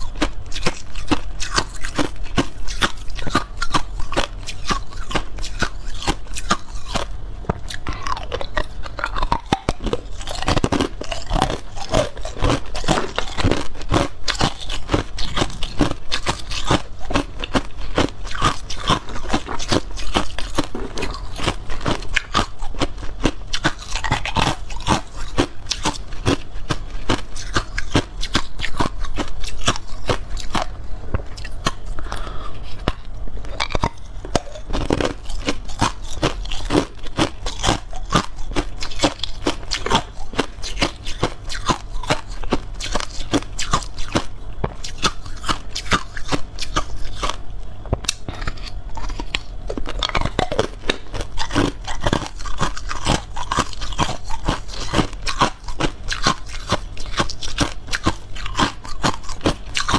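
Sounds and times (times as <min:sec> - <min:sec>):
ice cubes crunched and chewed: 0:00.0 - 0:47.4, 0:48.1 - 0:59.9.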